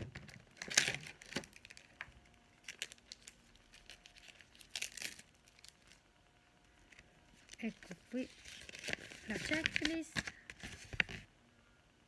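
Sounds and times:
plastic packaging crinkling: 0:00.0 - 0:06.0, 0:06.8 - 0:11.3.

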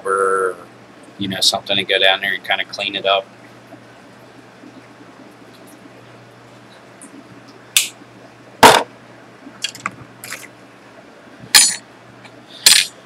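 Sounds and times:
louder knock: 0:08.6 - 0:08.9.

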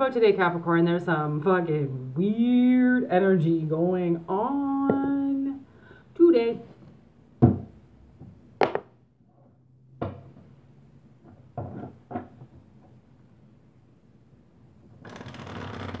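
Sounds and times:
cards shuffling: 0:15.0 - 0:16.0.

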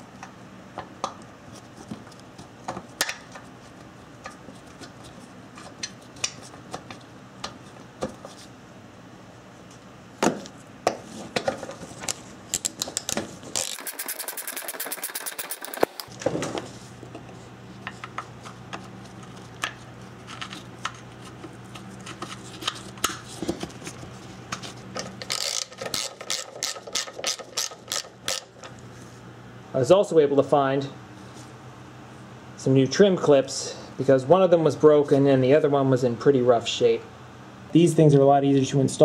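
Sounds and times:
hand ratchet clicking: 0:13.6 - 0:16.1.

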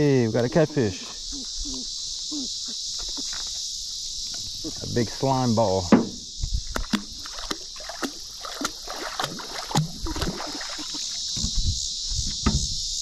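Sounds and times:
insects droning: 0:00.0 - 0:13.0
knocks splashes and drips: 0:05.8 - 0:11.5.

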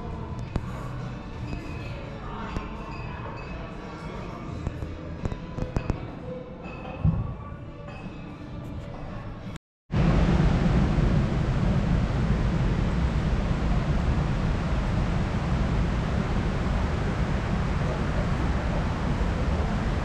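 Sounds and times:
water rushing into pools: 0:10.0 - 0:20.0.

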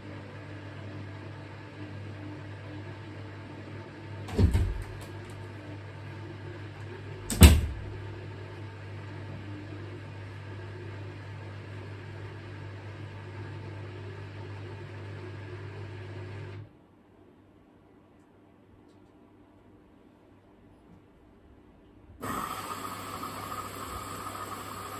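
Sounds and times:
washing machine drain pump humming: 0:00.0 - 0:16.6, 0:22.2 - 0:24.9.

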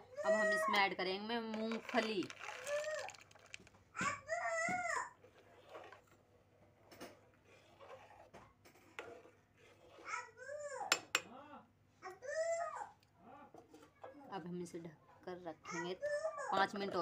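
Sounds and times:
ladle stirring thick pudding: 0:00.2 - 0:11.4, 0:12.8 - 0:14.4.

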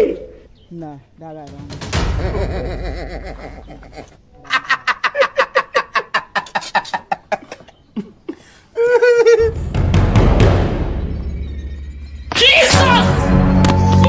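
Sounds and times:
person laughing: 0:02.1 - 0:09.6.

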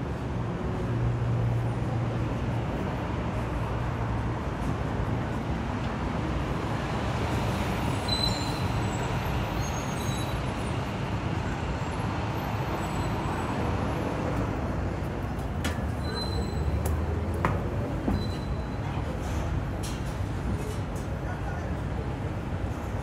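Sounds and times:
road traffic rumble: 0:00.0 - 0:23.0
faint high squeaks: 0:08.0 - 0:10.5, 0:16.0 - 0:16.9, 0:18.0 - 0:19.0.

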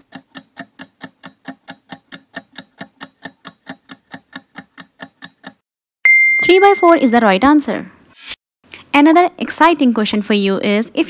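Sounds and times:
stopwatch ticking quickly: 0:00.0 - 0:05.6.

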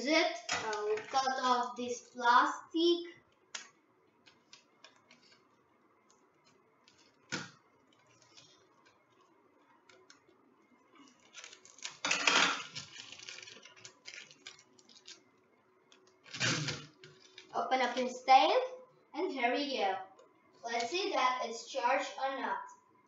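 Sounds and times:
plastic crackling and rustling: 0:03.4 - 0:18.1.

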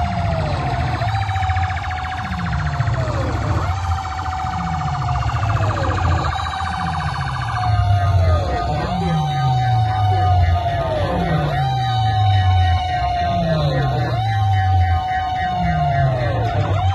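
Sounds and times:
siren-style electronic dance track: 0:00.0 - 0:16.9.

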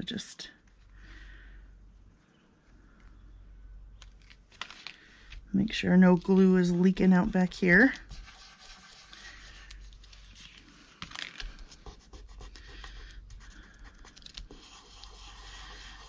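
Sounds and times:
paper rustling and scratching: 0:06.1 - 0:16.0.

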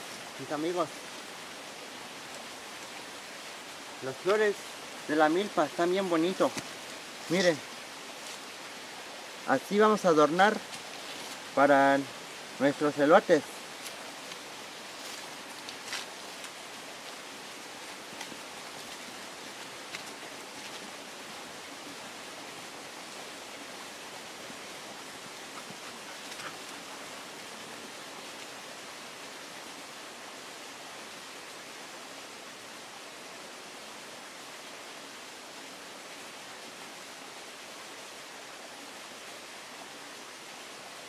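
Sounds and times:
steady outdoor hiss: 0:00.0 - 0:41.0
footsteps on grassy path: 0:05.5 - 0:08.6, 0:10.2 - 0:11.6, 0:13.3 - 0:22.6, 0:23.9 - 0:27.3
faint rustles: 0:10.6 - 0:11.6, 0:25.1 - 0:27.2.

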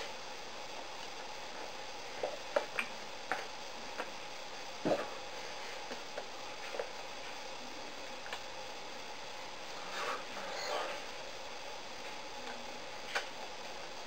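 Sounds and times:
steady hiss with faint hum: 0:00.0 - 0:14.0.

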